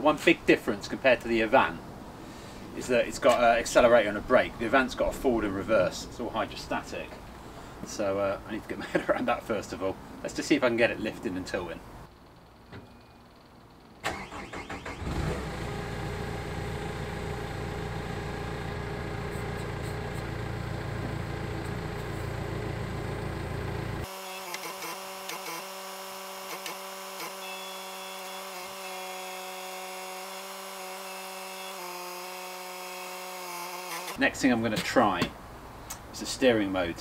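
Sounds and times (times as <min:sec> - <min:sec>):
diesel engine running: 0:14.9 - 0:24.1.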